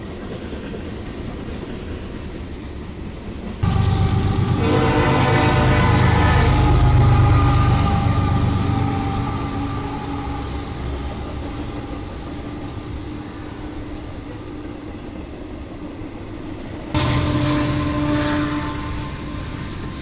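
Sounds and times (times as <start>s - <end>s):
freight cars rolling: 3.6s - 15.4s
locomotive engine rumble: 3.6s - 20.0s.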